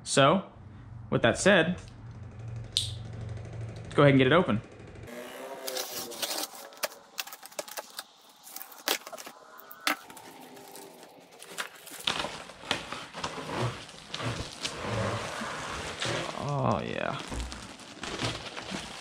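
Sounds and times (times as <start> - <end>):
knife slitting tape and cardboard: 5.2 - 16.7.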